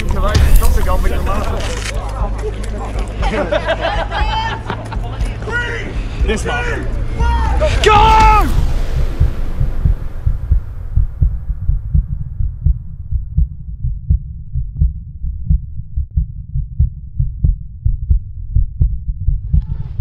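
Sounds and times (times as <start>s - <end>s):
heartbeat-like thudding: 0.0s - 2.4s, 8.0s - 20.0s.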